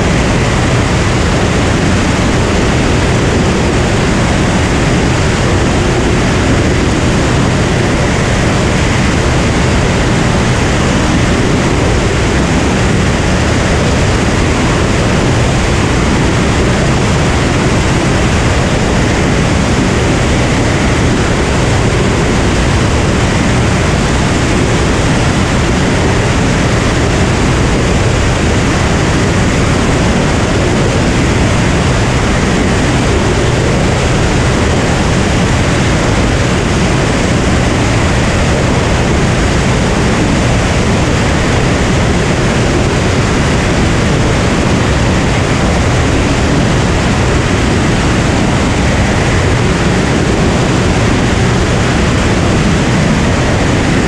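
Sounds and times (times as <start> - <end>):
piston aircraft engine drone: 0.0 - 54.0
rush of air: 0.0 - 54.0.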